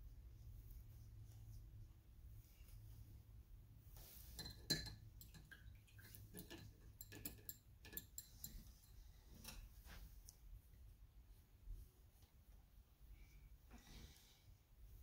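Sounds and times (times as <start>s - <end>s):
paintbrush clinking container: 4.2s - 9.0s.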